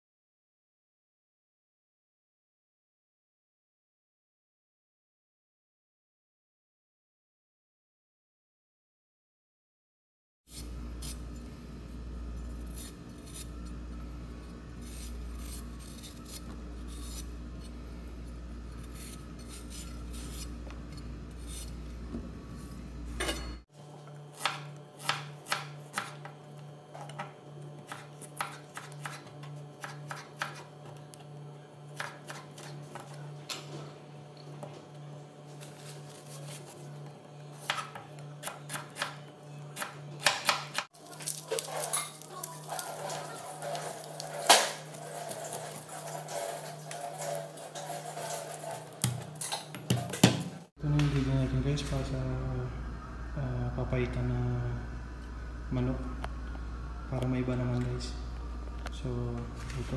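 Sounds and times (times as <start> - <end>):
steady low hum: 10.5 - 40.4, 50.6 - 59.9.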